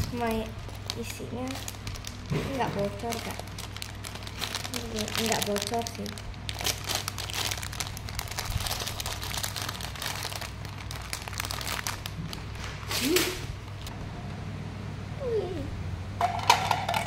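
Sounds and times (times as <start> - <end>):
plastic bag crinkling: 0.0 - 13.9.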